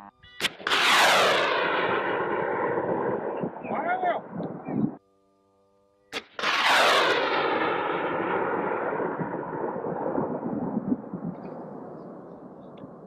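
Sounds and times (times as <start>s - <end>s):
launch pop: 0.4s - 3.7s, 6.1s - 11.6s
rocket motor rush: 6.2s - 9.3s.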